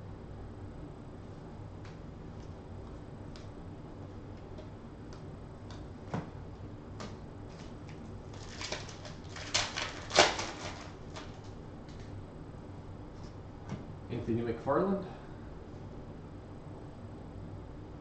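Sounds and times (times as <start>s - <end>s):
foil card pack tearing open: 8.3s - 11.5s.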